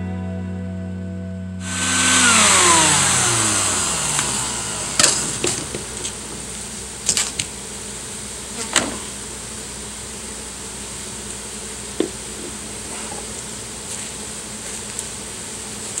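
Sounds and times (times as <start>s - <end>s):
buzzing of bees: 1.6s - 6.2s
vacuum motor whine winding down: 1.6s - 6.7s.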